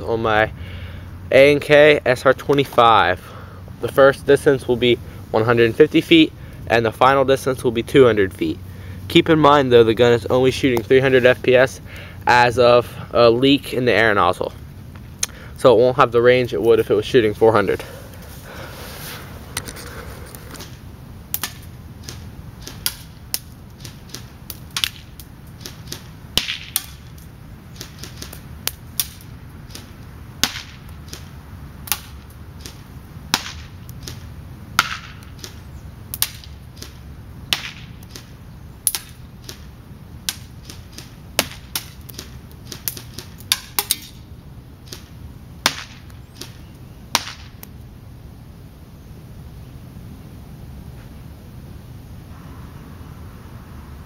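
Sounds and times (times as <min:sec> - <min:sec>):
bbs cracking on target: 0:21.4 - 0:31.3, 0:31.9 - 0:44.2
airsoft gun shots: 0:24.8 - 0:27.0.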